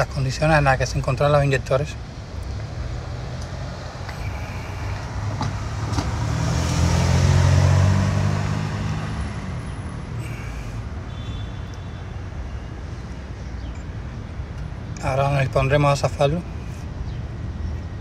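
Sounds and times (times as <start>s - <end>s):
vehicle passing by: 2.4s - 10.6s.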